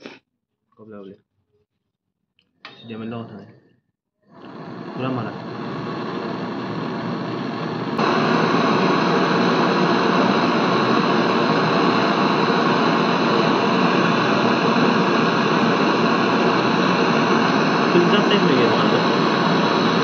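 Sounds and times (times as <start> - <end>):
gas torch hissing: 4.2 - 20.0.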